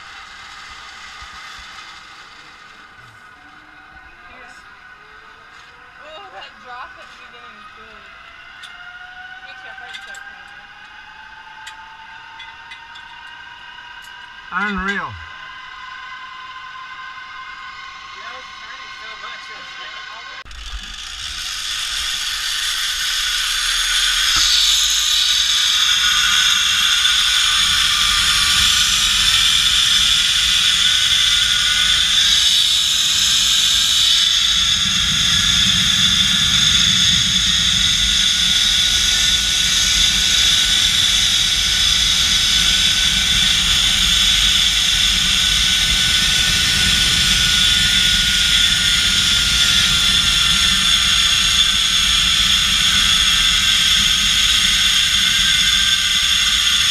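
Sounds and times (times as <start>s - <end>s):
zip-line pulley whine: 0.0s - 56.9s
wind rushing over microphone: 23.7s - 56.9s.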